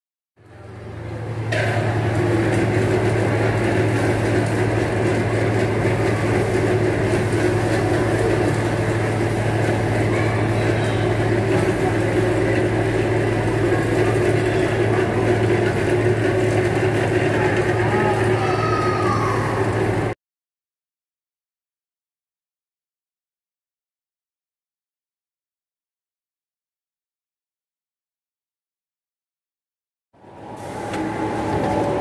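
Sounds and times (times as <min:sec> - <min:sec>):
air blower humming: 0:00.5 - 0:20.2, 0:30.2 - 0:32.0.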